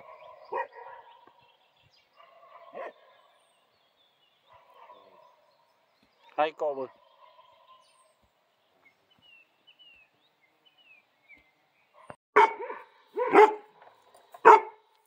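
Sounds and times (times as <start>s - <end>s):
dog barking: 0.0s - 1.3s, 2.2s - 3.3s, 4.5s - 5.5s, 12.0s - 13.8s, 14.4s - 14.8s.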